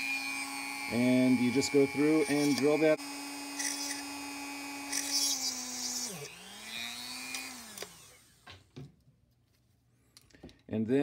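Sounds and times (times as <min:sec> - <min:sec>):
drill bit grinding: 0:00.0 - 0:08.6
handheld rotary drill running: 0:00.0 - 0:08.6.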